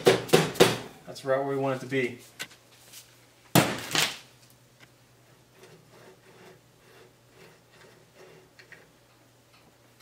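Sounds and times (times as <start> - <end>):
axle pinion rubbing: 5.3 - 9.0.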